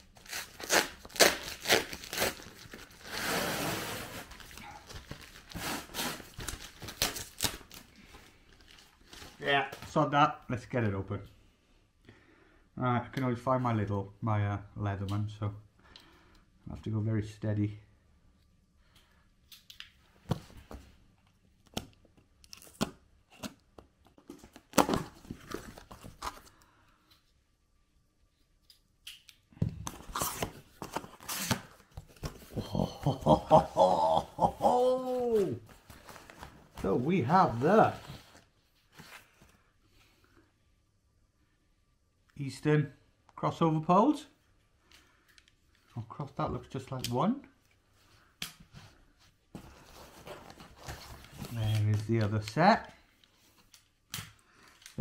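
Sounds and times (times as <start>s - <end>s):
tape ripping off cardboard: 0.2s - 4.4s, 29.9s - 31.8s.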